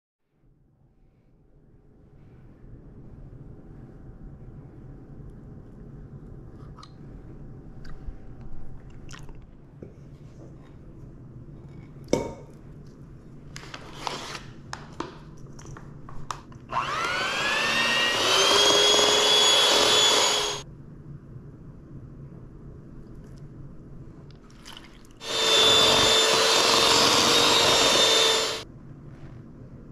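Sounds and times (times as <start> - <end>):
electric hand mixer motor: 16.7 - 20.6, 25.2 - 28.6.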